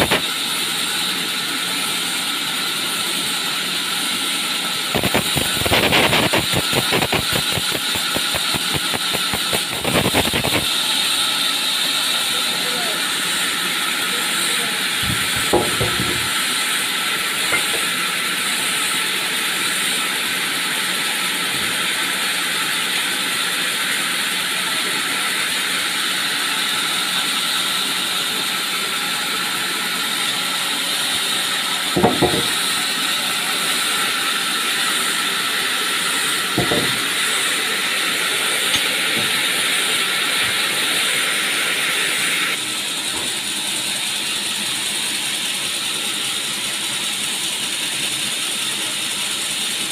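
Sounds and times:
log saw hissing: 0:00.0 - 0:49.9
sharp knocks: 0:15.0 - 0:16.3, 0:32.0 - 0:32.5, 0:36.6 - 0:37.0.

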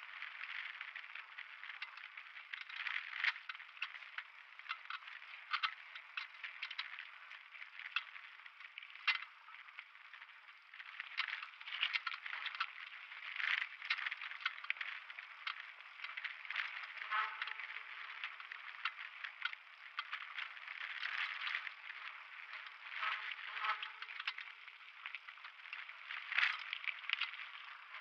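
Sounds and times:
mountain bike rattling on dirt: 0:00.0 - 0:28.0
sharp clicks and knocks from bumps: 0:10.8 - 0:28.0.

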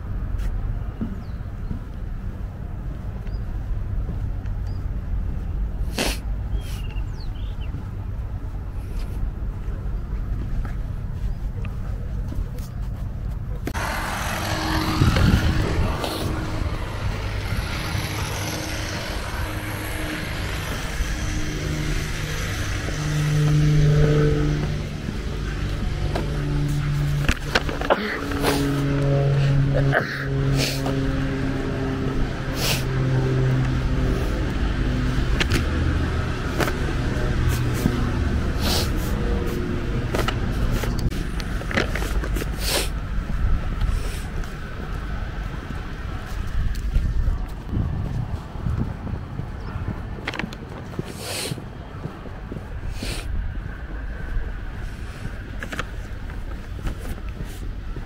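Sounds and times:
street noise: 0:00.0 - 0:58.0
vehicle engine passing: 0:13.1 - 0:58.0.

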